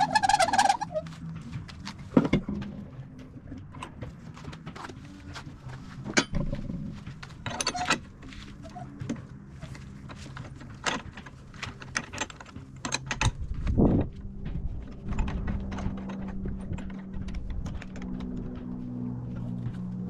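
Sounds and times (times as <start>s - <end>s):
metal clicks and knocks: 8.9s - 18.8s.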